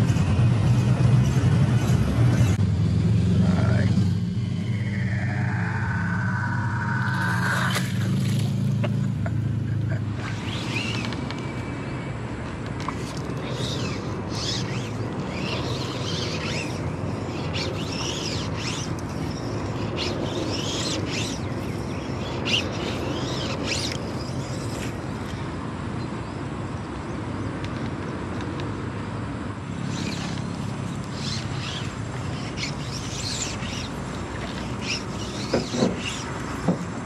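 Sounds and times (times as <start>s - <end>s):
low outdoor rumble: 0.0s - 26.4s
birds chirping: 12.9s - 25.4s, 29.8s - 36.8s.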